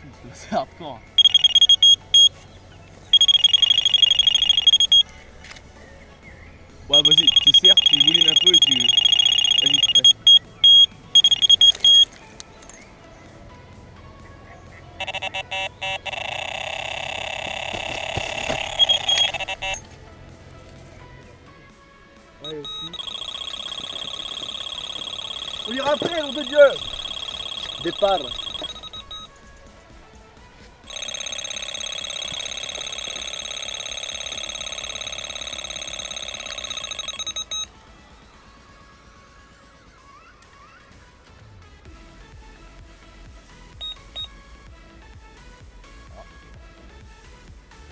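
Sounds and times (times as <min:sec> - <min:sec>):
continuous alarm tone: 0:01.0 - 0:02.4, 0:03.1 - 0:05.2, 0:06.9 - 0:12.8, 0:15.0 - 0:19.9, 0:22.4 - 0:29.4, 0:30.8 - 0:38.9
electronic bite alarm beeps: 0:01.2 - 0:02.3, 0:03.1 - 0:05.1, 0:06.9 - 0:12.1, 0:15.0 - 0:19.9, 0:22.4 - 0:29.3, 0:30.9 - 0:37.7, 0:43.8 - 0:44.3.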